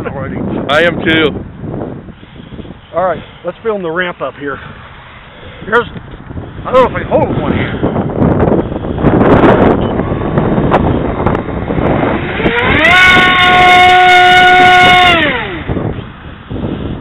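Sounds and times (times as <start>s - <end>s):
wind noise on microphone: 0.0s - 17.0s
electric motor propeller whine: 7.4s - 17.0s.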